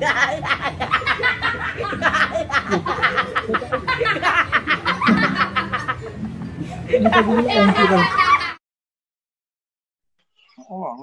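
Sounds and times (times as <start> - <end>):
boys laughing: 0.0 - 8.6.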